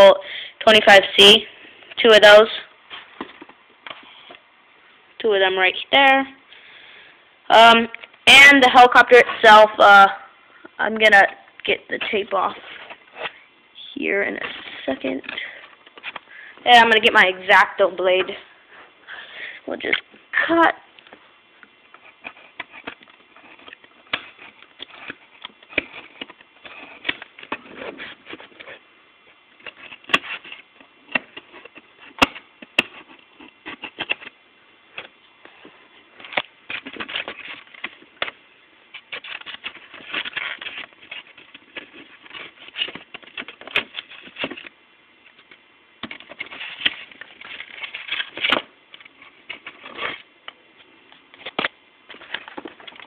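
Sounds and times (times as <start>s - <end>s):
plastic tray crackling and rustling: 35.0s - 50.3s.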